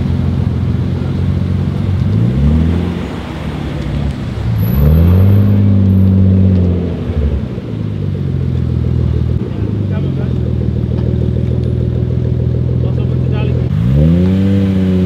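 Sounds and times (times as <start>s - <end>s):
car engine idling and revving: 0.0s - 15.0s.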